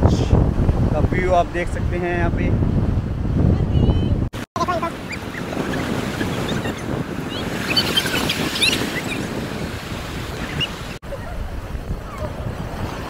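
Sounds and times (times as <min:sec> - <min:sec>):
ocean surf breaking: 0:04.4 - 0:13.0.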